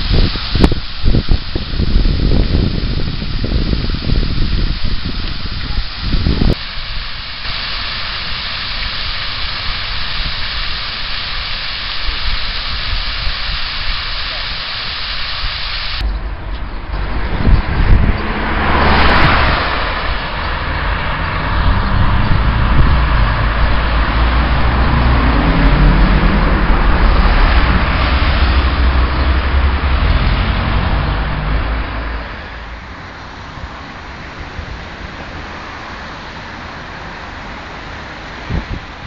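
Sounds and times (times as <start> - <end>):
steady traffic hum: 0.0 - 39.0
cars passing: 16.0 - 39.0.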